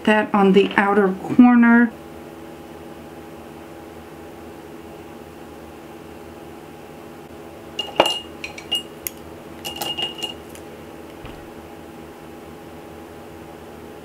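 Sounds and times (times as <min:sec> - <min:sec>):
faint steady hum: 0:00.0 - 0:14.0
brushes clinking on container: 0:07.8 - 0:09.0, 0:09.6 - 0:10.6.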